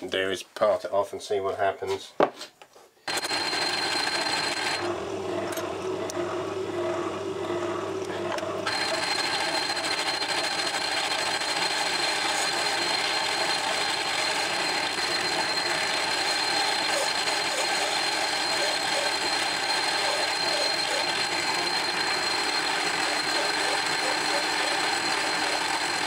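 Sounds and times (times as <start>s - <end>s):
metal lathe high whine: 3.1s - 26.0s
low machine hum: 4.8s - 9.1s.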